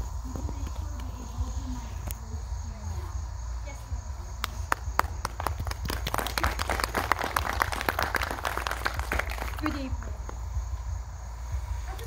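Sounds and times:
audience applause: 5.0 - 9.8.

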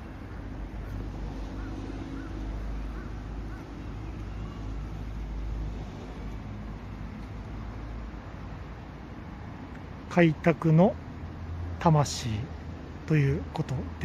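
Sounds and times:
faint bird calls: 0.2 - 5.2.

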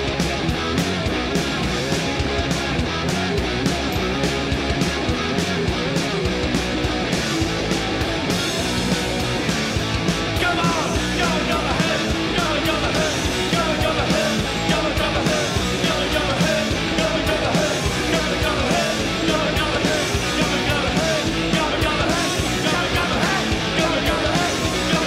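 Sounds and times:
punk rock music: 0.0 - 25.0
shouted singing: 10.3 - 25.0.

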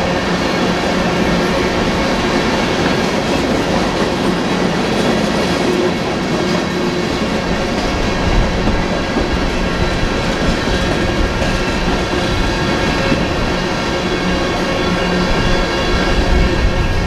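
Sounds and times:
freight train rumbling past: 0.0 - 17.0
steel wheels clacking over track: 0.0 - 17.0.

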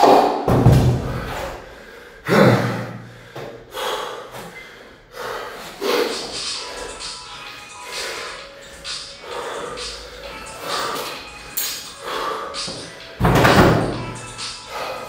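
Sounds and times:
kettlebells thudding on floor: 0.5 - 1.4.

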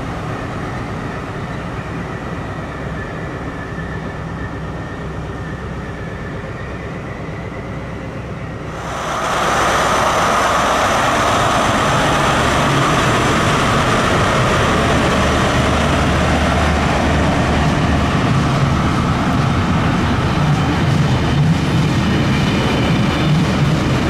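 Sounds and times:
diesel locomotive engine drone: 0.0 - 24.0
wheel and rail noise: 0.0 - 24.0.

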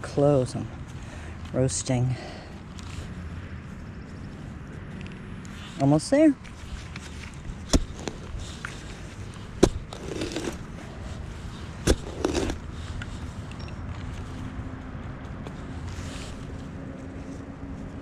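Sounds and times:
dirt scraping: 0.0 - 18.0
digging tool chopping soil: 6.9 - 13.2.

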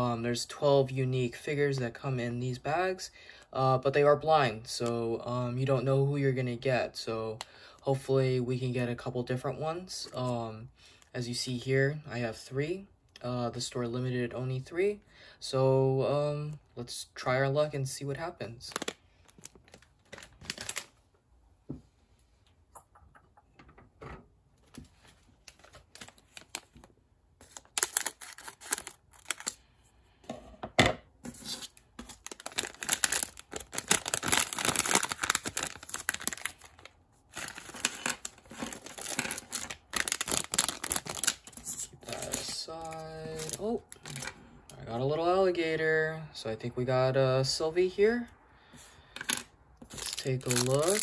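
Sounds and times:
plastic bag crinkling and tearing: 18.6 - 21.0, 25.3 - 29.6, 31.3 - 44.4, 49.3 - 51.0.

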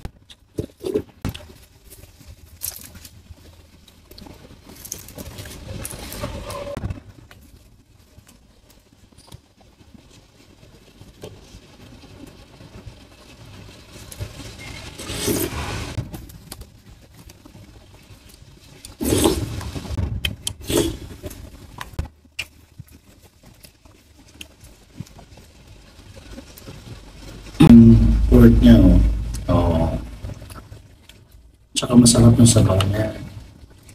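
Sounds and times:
noisy bursts: 12.7 - 16.1, 18.8 - 21.7, 26.8 - 31.0, 31.8 - 33.7.

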